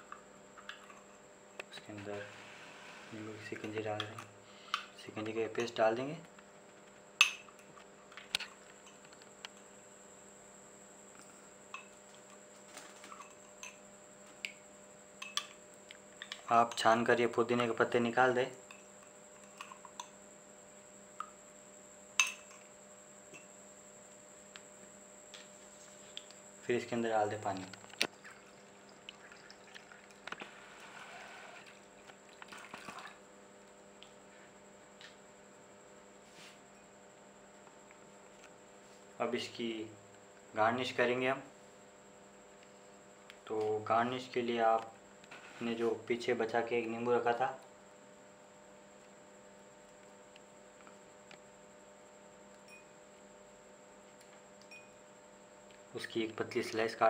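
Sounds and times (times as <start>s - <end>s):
spoon and jar clinking on glass: 22.2s - 22.7s
water pouring into a glass: 28.1s - 31.7s.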